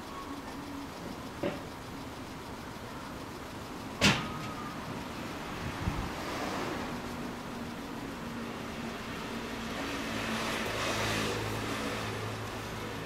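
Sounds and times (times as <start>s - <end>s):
vehicle hum: 0.0s - 13.0s
vehicle rushing past: 9.3s - 12.6s.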